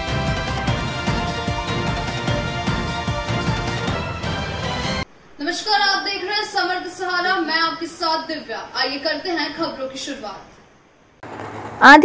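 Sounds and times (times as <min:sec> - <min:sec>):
steady drum beat: 0:00.0 - 0:04.8.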